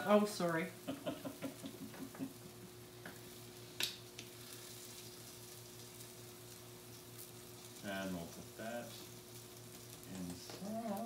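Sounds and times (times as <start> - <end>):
sausages sizzling on a grill: 0.0 - 11.0
steady low hum: 0.0 - 11.0
person chuckling: 0.8 - 2.4.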